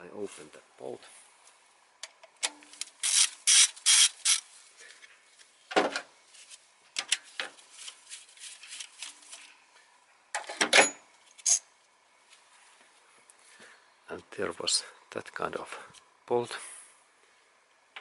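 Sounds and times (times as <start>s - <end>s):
ratchet wrench rasping: 3.0s - 4.4s.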